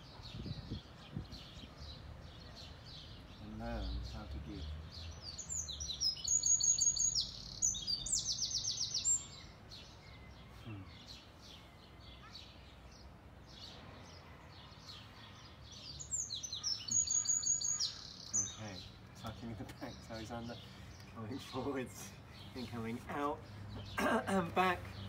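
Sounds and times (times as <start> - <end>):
songbird singing: 0.0 - 25.0
faint bird chirps: 5.4 - 12.9, 13.7 - 19.9.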